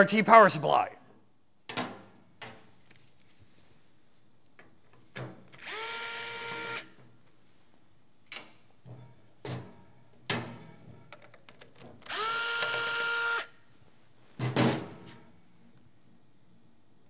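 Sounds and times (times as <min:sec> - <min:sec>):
electric screwdriver motor whine: 0:05.6 - 0:06.9, 0:12.1 - 0:13.5.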